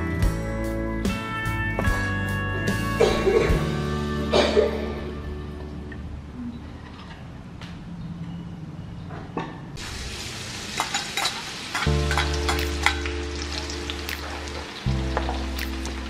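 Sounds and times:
oil sizzling in wok: 9.8s - 16.0s.

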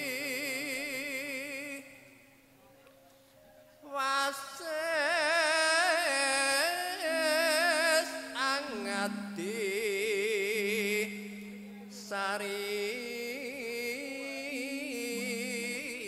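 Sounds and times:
man singing with vibrato: 0.0s - 2.3s, 3.8s - 16.0s
low held tone: 7.0s - 16.0s.

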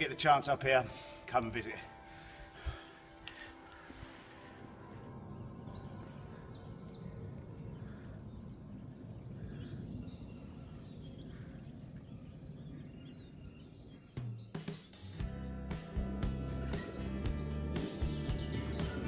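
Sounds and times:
music: 0.0s - 6.4s, 14.2s - 19.0s
wild birds chirping: 0.0s - 19.0s
wind rumble on microphone: 4.7s - 14.2s.

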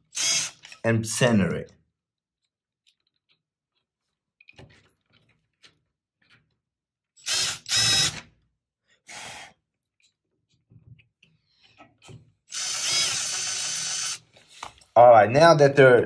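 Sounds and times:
cordless drill driving screw: 0.1s - 0.8s, 7.2s - 8.3s, 12.5s - 14.2s.

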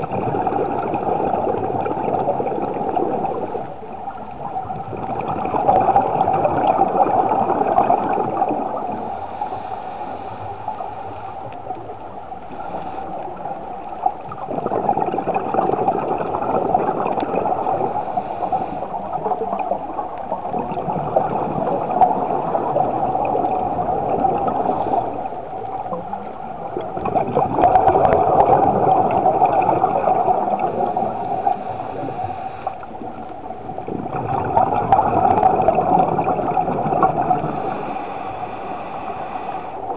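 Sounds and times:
bubbles gurgling: 0.0s - 9.6s, 11.5s - 39.9s
diver breathing through regulator: 9.0s - 11.5s, 17.7s - 19.1s, 30.5s - 32.9s, 37.2s - 39.9s.

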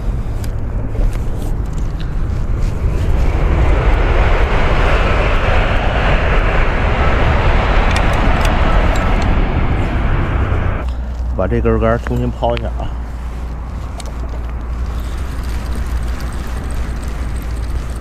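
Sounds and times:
high-speed train rushing: 2.1s - 10.9s.

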